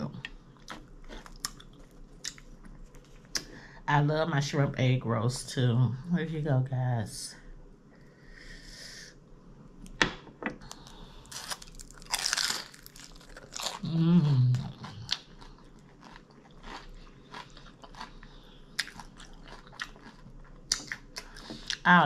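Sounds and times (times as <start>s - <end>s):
crunching crispy food: 10.7s - 21.8s
falling hum of voice: 13.8s - 15.1s.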